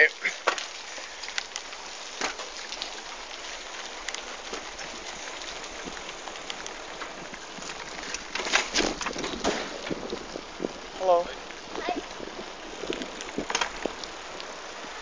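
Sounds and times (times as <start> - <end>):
bicycle tyres rolling over paving: 0.0 - 15.0
knocks and clatter: 8.3 - 10.2.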